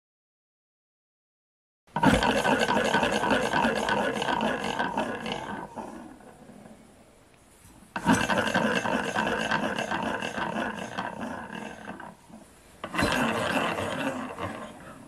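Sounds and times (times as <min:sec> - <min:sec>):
engine linkage whirring and rubbing: 0:12.8 - 0:14.6.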